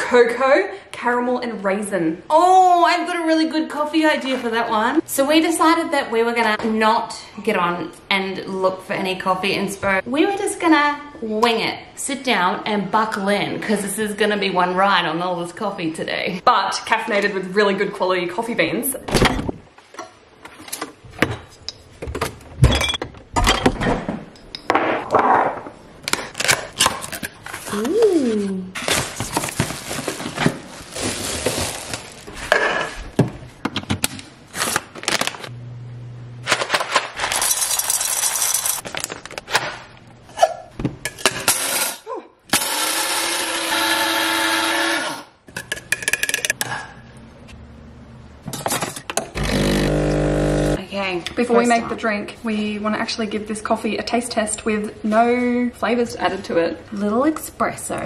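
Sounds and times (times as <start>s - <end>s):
coffee grinder whining: 42.6s - 45.3s, 49.4s - 50.8s.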